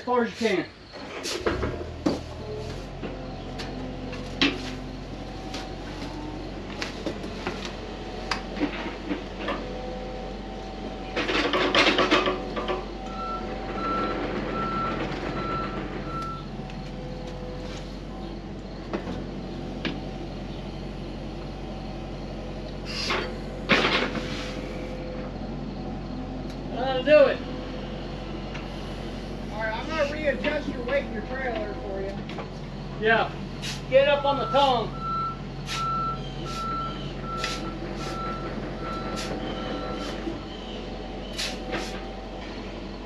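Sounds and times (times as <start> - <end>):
excavator diesel engine running: 0.0 - 43.0
clanks and knocks: 1.2 - 9.9, 11.1 - 17.6, 18.8 - 20.1, 23.1 - 24.3, 30.1 - 32.7
backup alarm beeping: 13.0 - 16.6, 34.1 - 40.2.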